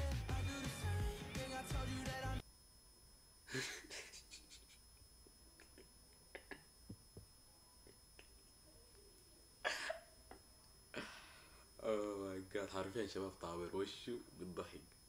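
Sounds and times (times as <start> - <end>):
man laughing breathily: 3.5 - 4.9.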